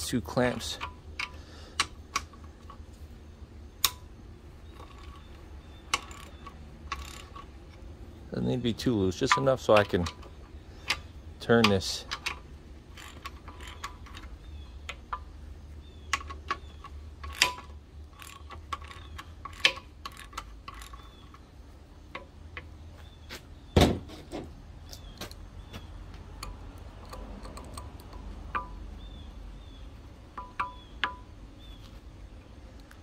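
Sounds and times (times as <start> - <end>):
ratcheting wrench clicking: 0.5 - 2.8, 4.7 - 7.8, 9.1 - 15.3, 16.0 - 21.4, 26.4 - 28.8.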